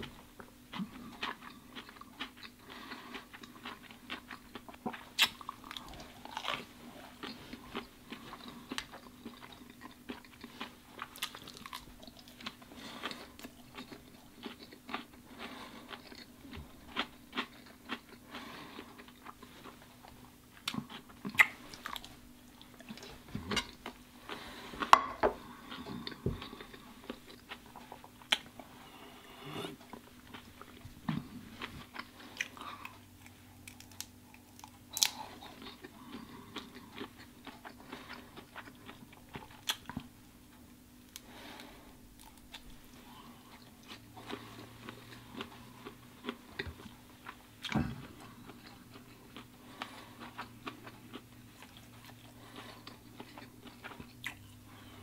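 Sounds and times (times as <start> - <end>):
person chewing food: 0.0 - 55.0
steady low hum: 0.0 - 55.0.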